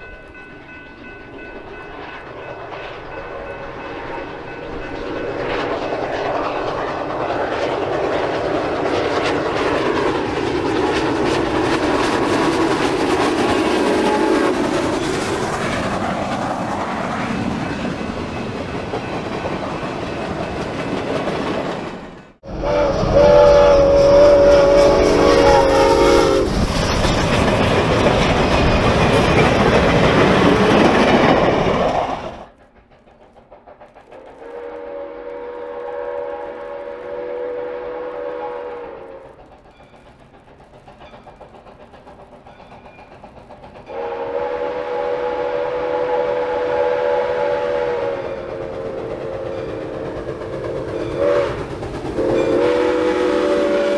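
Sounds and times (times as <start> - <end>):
steam locomotive running past: 0.0 - 53.9
steam whistle: 13.6 - 14.7, 22.4 - 26.6, 34.4 - 39.4, 43.9 - 53.9.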